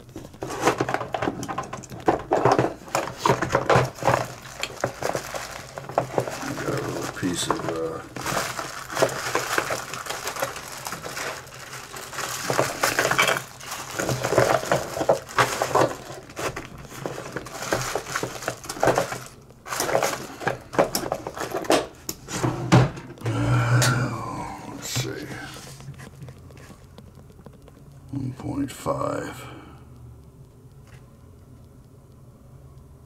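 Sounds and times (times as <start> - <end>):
small tools clinking and tapping: 7.4 - 21.8.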